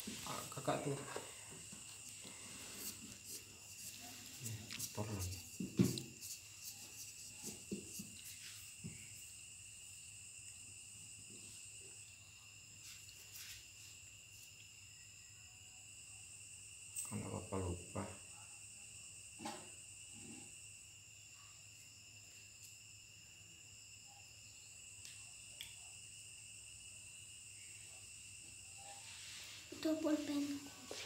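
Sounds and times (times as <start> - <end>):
crickets chirring: 0.0 - 31.0.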